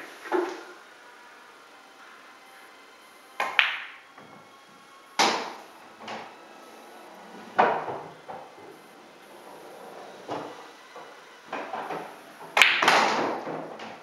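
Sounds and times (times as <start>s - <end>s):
cue striking ball: 0.0s - 0.8s, 3.4s - 4.3s, 5.2s - 6.3s, 7.4s - 8.8s, 10.2s - 13.9s
pool balls clacking: 0.0s - 0.8s, 3.4s - 4.5s, 5.2s - 14.0s.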